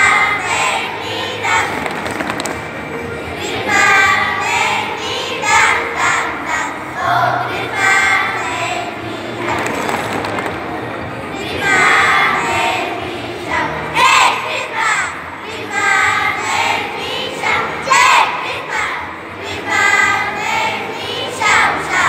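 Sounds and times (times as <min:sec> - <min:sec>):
children singing in chorus: 0:00.0 - 0:02.0, 0:03.3 - 0:10.0, 0:11.4 - 0:22.0.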